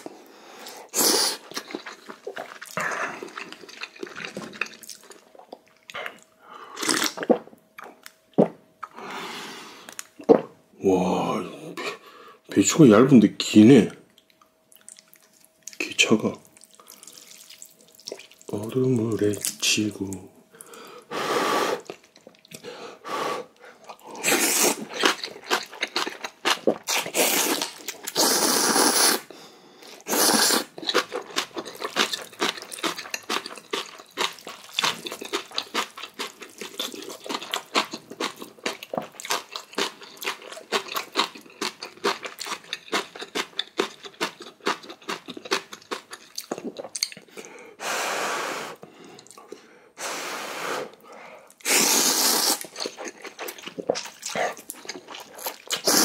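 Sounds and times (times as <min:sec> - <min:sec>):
wet chewing: 0:01.4 - 0:08.0, 0:16.5 - 0:18.6, 0:23.7 - 0:29.1, 0:30.2 - 0:47.6, 0:51.5 - 0:56.0
noodles being slurped: 0:24.2 - 0:29.3, 0:30.0 - 0:43.6, 0:51.6 - 0:56.0.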